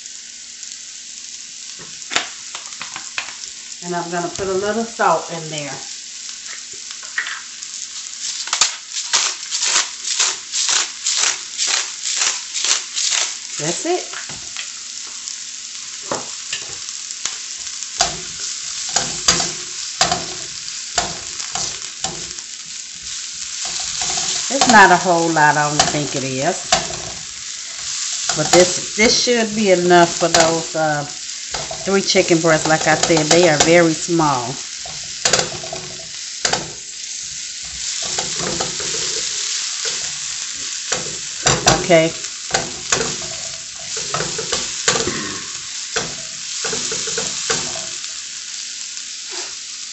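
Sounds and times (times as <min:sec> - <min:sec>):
vegetables sizzling in oil: 0:00.0 - 0:49.9
spatula scraping and knocking pan: 0:18.0 - 0:30.8, 0:31.5 - 0:34.0, 0:34.8 - 0:48.1.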